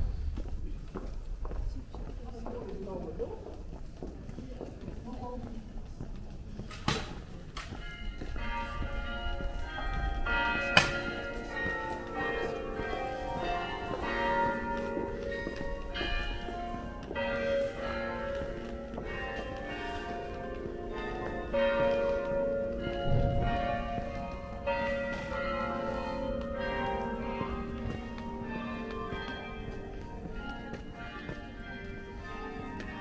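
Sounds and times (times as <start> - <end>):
church bells ringing: 7.4 - 33.0.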